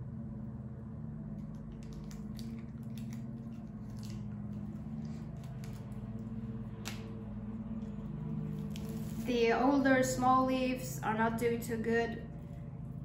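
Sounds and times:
low hum: 0.0s - 13.0s
plastic wrap crinkling: 1.6s - 6.2s, 8.5s - 9.3s.

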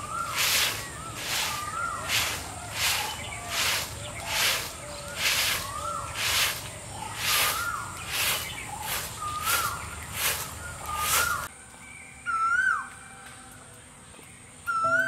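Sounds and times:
bird calling: 0.0s - 11.5s, 14.7s - 15.0s
broom sweeping sandy ground: 0.0s - 11.5s.

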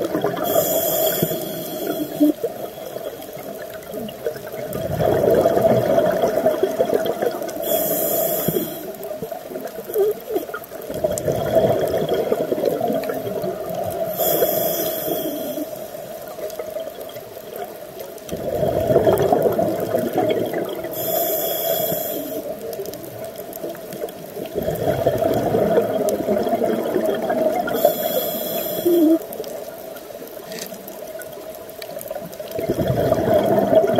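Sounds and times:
gurgling exhaled bubbles: 0.0s - 15.6s, 18.2s - 21.1s, 21.9s - 29.3s, 32.4s - 33.9s
regulator inhale hiss: 0.4s - 3.6s, 7.5s - 9.2s, 14.0s - 16.2s, 20.8s - 22.8s, 27.7s - 29.4s.

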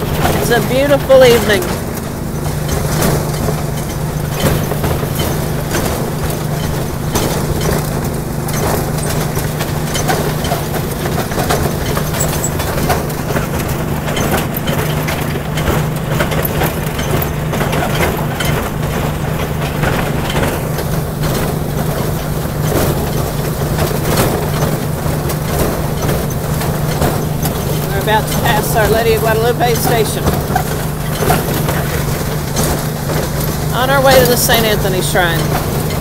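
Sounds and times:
small train droning: 0.0s - 36.0s
train running gear clicks and knocks: 1.7s - 28.9s.

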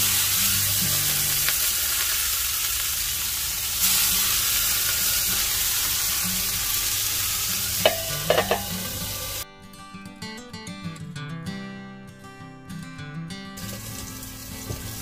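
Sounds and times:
food sizzling in a pan: 0.0s - 9.4s, 13.6s - 15.0s
acoustic guitar music: 0.0s - 15.0s
utensil clicking against pan: 7.8s - 9.0s.

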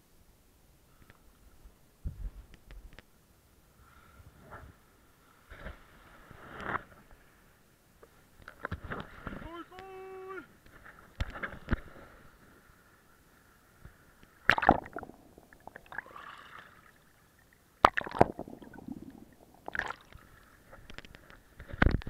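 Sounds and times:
water splashing over camera: 14.4s - 17.2s, 17.8s - 21.0s.

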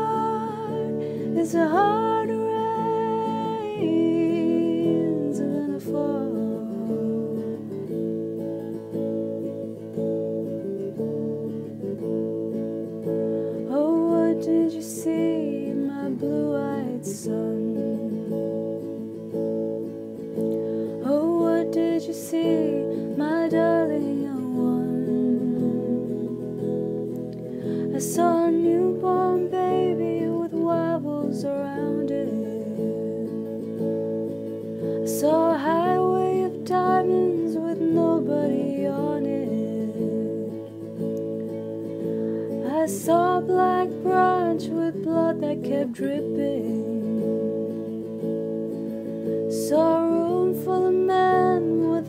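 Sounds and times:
acoustic guitar strumming chords: 0.0s - 52.0s.

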